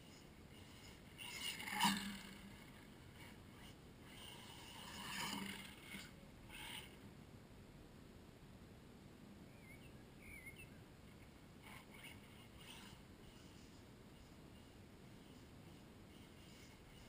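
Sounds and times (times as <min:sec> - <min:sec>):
toy car motor and tyre noise: 0:00.0 - 0:07.0, 0:11.1 - 0:17.0.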